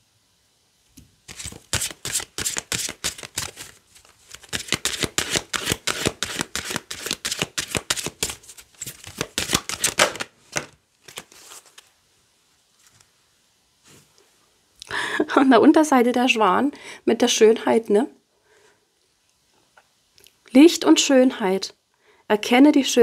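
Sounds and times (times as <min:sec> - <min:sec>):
cards being shuffled: 0:01.3 - 0:11.9.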